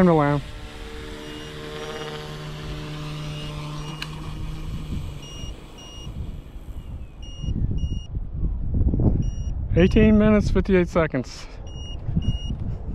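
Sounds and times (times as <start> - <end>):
rc helicopter motor and rotor whining: 0.0 - 8.1
short electronic beeps: 5.2 - 6.2, 6.8 - 8.1, 9.2 - 10.2, 11.7 - 12.6.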